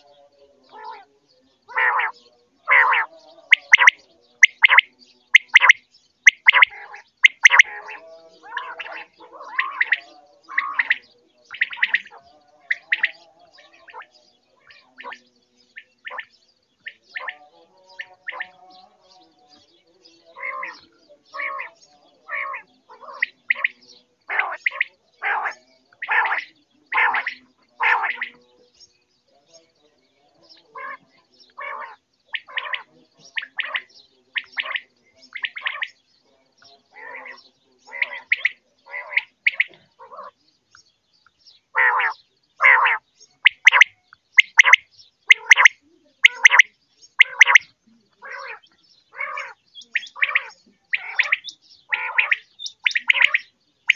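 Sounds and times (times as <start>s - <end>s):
quail calling: 0.7s - 1.1s, 1.7s - 15.2s, 20.3s - 28.4s, 30.7s - 31.0s, 31.6s - 36.0s, 37.0s - 40.4s, 41.8s - 53.9s.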